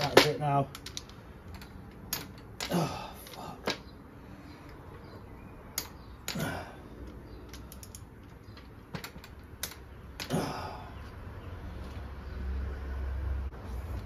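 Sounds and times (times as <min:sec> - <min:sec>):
metal tools clicking on engine: 0:05.7 - 0:10.4.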